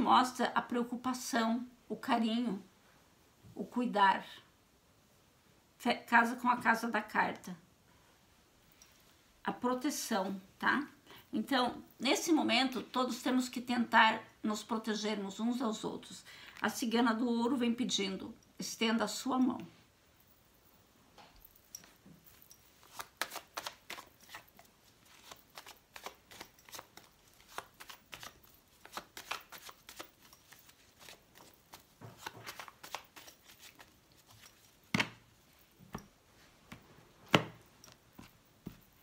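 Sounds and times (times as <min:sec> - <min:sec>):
cards being shuffled: 0:22.8 - 0:35.2.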